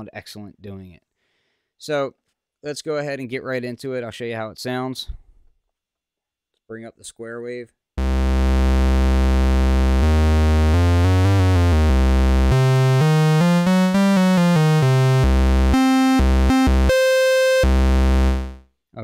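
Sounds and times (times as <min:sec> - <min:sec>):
square-wave synth oscillator tone: 0:08.0 - 0:18.6.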